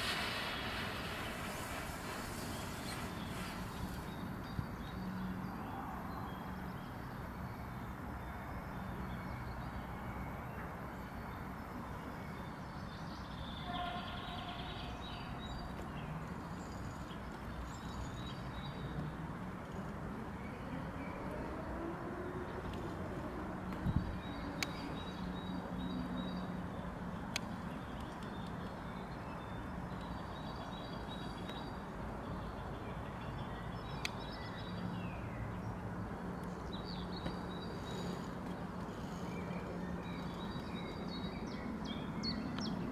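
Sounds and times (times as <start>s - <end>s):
battery venting hiss: 0.0s - 4.1s.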